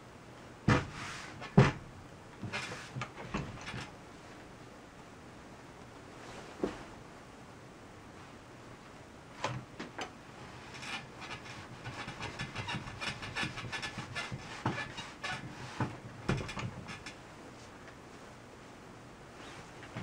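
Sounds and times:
fabric rustling and crackling: 6.0s - 7.0s.

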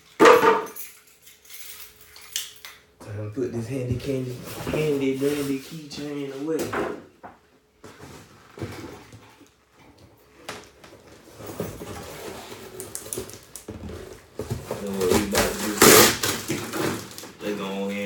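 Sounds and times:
cardboard box rustling and knocking: 11.2s - 17.1s.

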